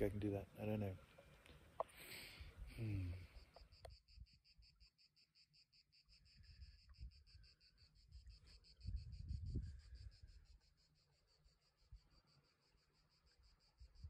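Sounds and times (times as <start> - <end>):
cricket chirping: 0.0 - 14.0
low rumble of wind: 6.4 - 10.6.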